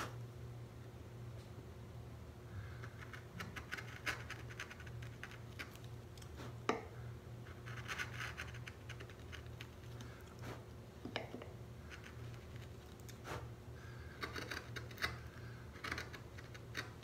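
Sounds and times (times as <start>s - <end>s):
gouge scraping wood: 2.9s - 6.8s, 7.5s - 10.7s, 13.2s - 17.0s.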